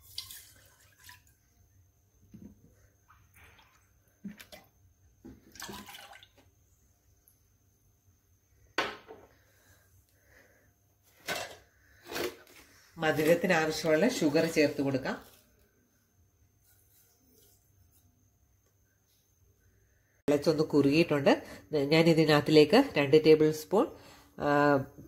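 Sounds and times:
milk pouring into saucepan: 0.0 - 1.5, 3.1 - 6.6.

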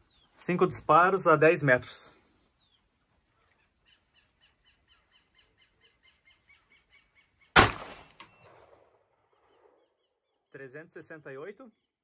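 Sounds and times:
bird chirping: 0.0 - 0.8, 2.1 - 12.0
pistol shot: 7.6 - 8.9.

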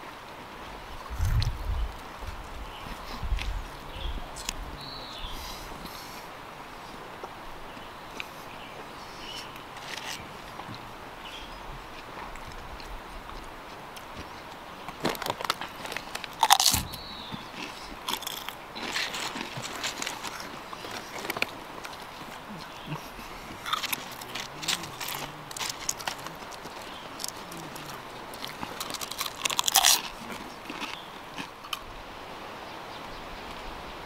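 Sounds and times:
person eating crunchy food: 15.1 - 31.8.

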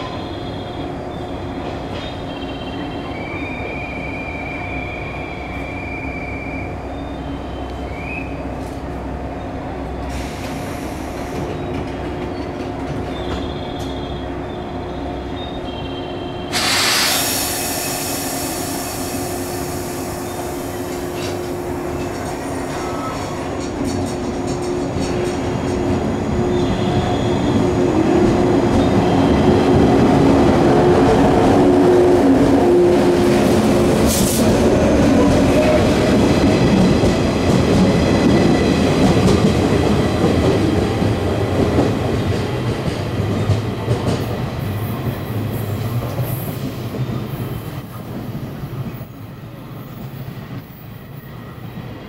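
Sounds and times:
electric train passing: 0.0 - 52.0
train wheels running over rails: 10.1 - 14.2, 16.5 - 52.0.

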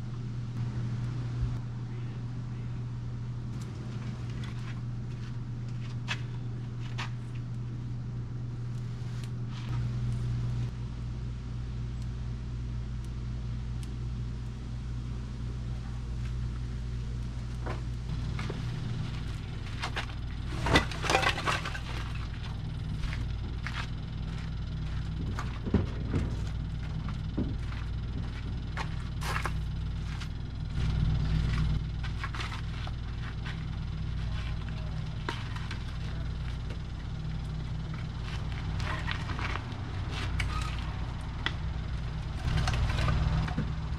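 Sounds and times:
steady low hum: 0.0 - 43.9
firewood knocking and clattering: 17.6 - 30.2.

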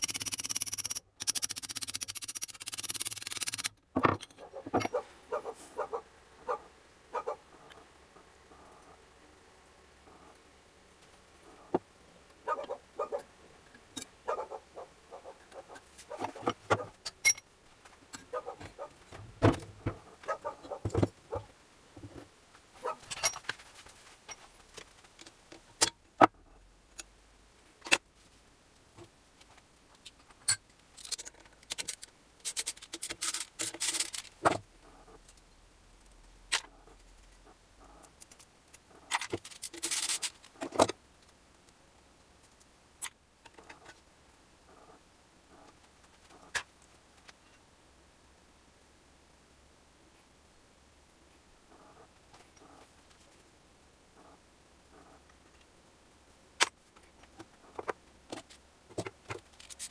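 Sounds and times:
metal tools clinking: 17.1 - 17.4.

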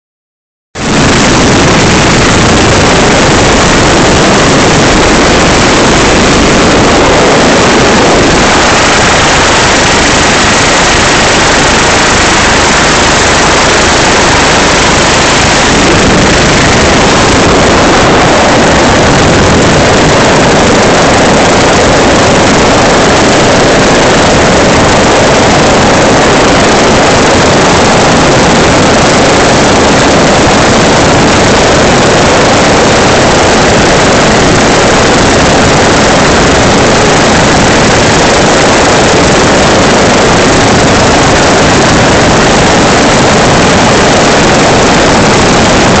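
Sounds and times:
helicopter rotor and engine noise: 0.8 - 46.0.

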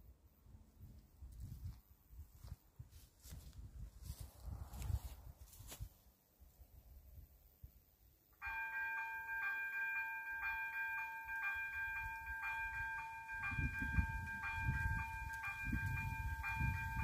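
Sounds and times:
level crossing bell ringing: 8.4 - 17.0.

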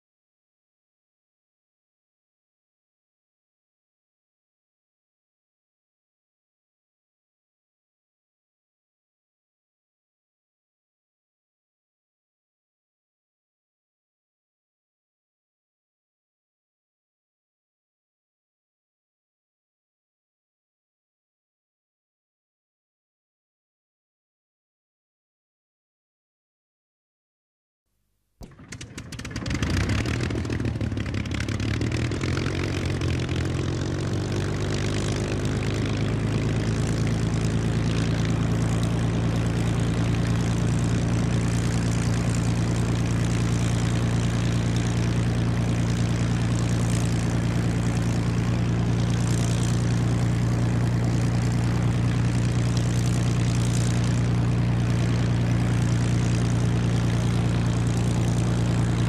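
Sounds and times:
propeller aircraft engine running: 28.4 - 59.0.

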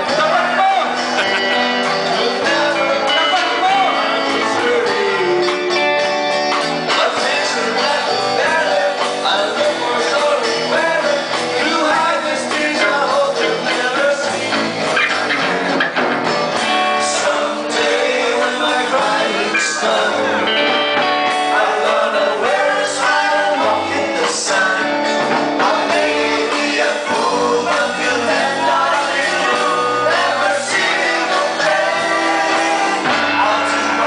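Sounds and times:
electric guitar: 0.0 - 34.0
live band playing: 0.0 - 34.0
men singing: 0.0 - 34.0.

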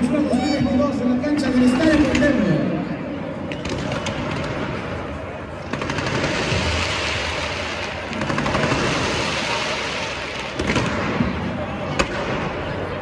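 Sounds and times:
pyrotechnics crackling: 5.7 - 11.2.

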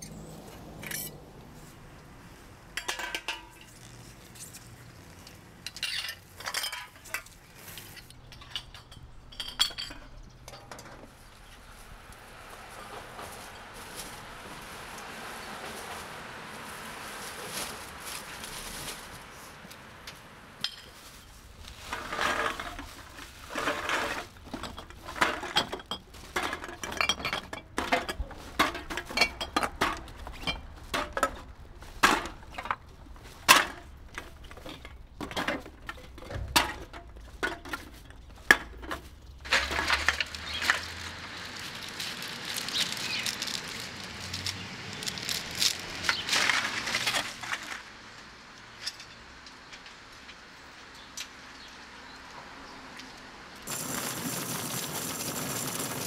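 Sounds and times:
plastic bags rustling: 11.1 - 20.0, 20.7 - 47.9, 53.7 - 56.0
hard items clinking in bags: 20.6 - 47.8, 53.7 - 56.0.

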